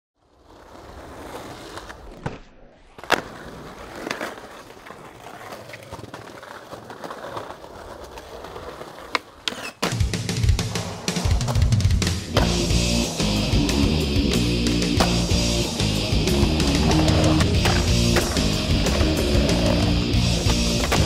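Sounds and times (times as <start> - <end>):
skateboard wheels rolling on pavement: 0.2 - 21.0
skateboard clacking on ground: 1.6 - 10.1, 16.4 - 21.0
drum-kit music: 9.8 - 21.0.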